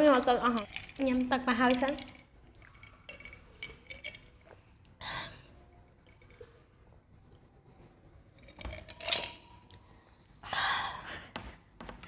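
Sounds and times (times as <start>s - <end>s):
glass jar clinks: 0.5s - 4.4s.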